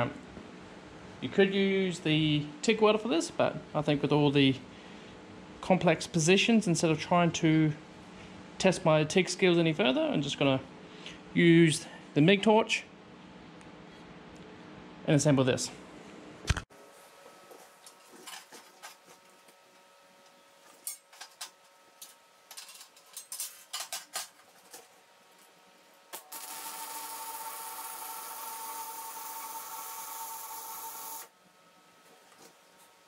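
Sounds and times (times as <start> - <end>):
welding arc buzzing: 26.1 - 31.3.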